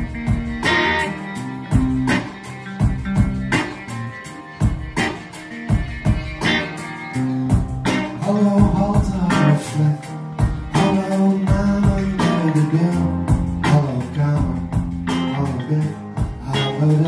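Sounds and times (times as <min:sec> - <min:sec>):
drum hits: 0:00.0 - 0:01.1, 0:01.7 - 0:03.8, 0:04.6 - 0:06.7, 0:07.5 - 0:09.5, 0:10.4 - 0:12.7
guitar: 0:00.0 - 0:17.0
live band playing: 0:00.0 - 0:17.0.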